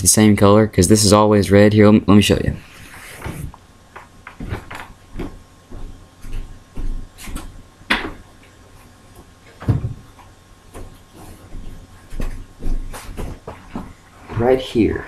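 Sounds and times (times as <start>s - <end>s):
objects knocking and rustling: 3.2s - 8.3s, 9.1s - 14.0s.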